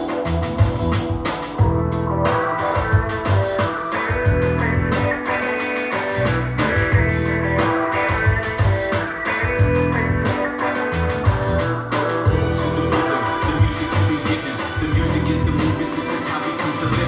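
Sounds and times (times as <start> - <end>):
guitar bass and drums music: 0.0 - 17.0.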